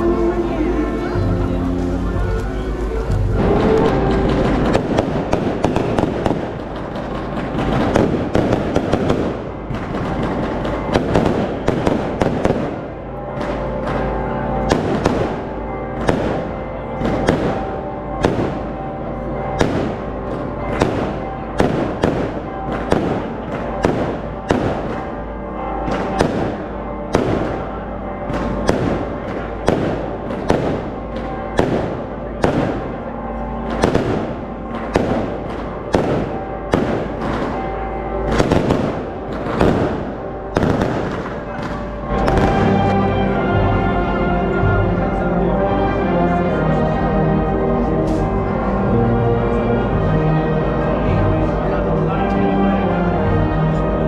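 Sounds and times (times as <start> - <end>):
music playing: 0.0 - 54.0
fireworks bangs: 3.4 - 43.3.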